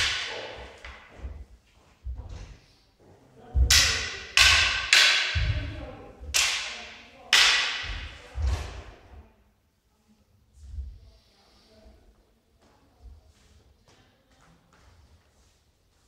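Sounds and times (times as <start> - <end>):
wooden swords clashing: 0.0 - 1.3, 3.6 - 9.0
footwork thuds on wooden floor: 1.1 - 2.5.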